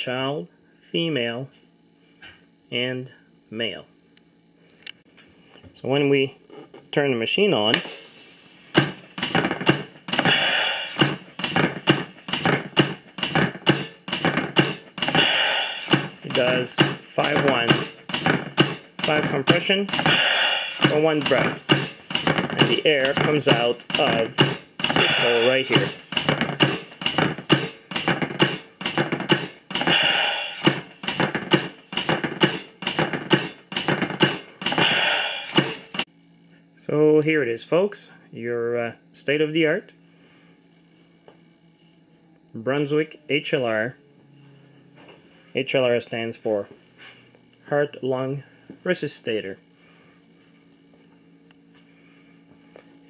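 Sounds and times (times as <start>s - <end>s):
piston clicking and hissing: 7.7s - 36.1s
long hiss of air: 7.8s - 8.8s, 10.2s - 11.4s, 15.1s - 16.4s, 19.9s - 22.1s, 29.8s - 31.0s, 34.8s - 36.0s
long air hiss: 7.8s - 36.1s
mechanical plunger clacking: 8.7s - 36.0s.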